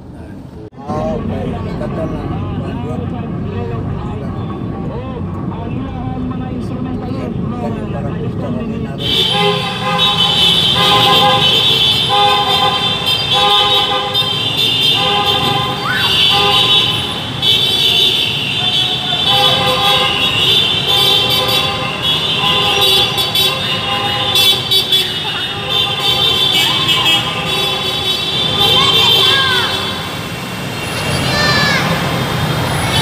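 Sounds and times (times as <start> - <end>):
car horns honking: 8.9 - 33.0.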